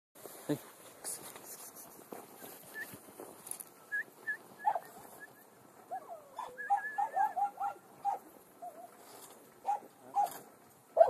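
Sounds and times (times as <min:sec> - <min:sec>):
dog whining: 0:05.9 - 0:07.5.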